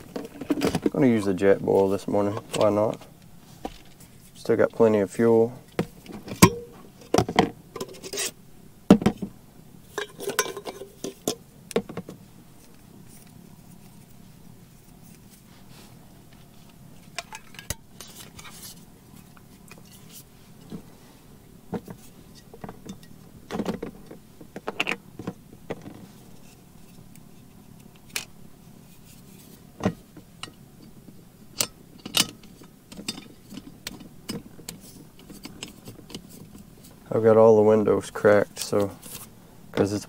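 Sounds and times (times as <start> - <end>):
camp stove parts clinking: 5.6 - 8.4, 9.9 - 12.0, 17.0 - 18.7, 21.8 - 25.0, 29.8 - 31.0, 31.6 - 36.7.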